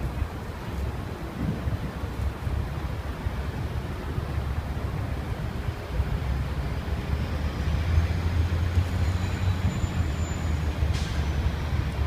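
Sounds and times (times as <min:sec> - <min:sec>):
city traffic rumble: 0:00.0 - 0:12.0
large vehicle passing: 0:06.4 - 0:12.0.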